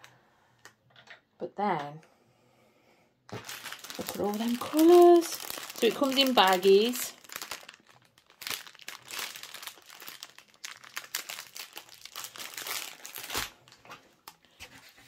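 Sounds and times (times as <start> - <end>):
plastic wrapping crinkling: 3.3 - 15.0.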